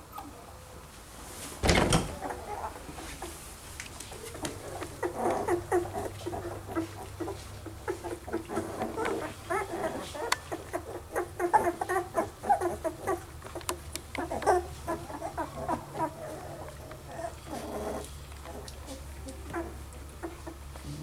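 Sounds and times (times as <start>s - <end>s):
puppies squeaking and whimpering: 2.1s - 3.4s, 4.2s - 21.0s.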